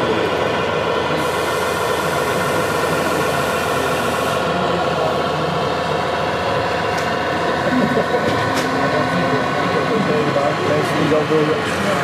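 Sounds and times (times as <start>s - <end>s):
model train diesel engine sound: 0.0s - 12.0s.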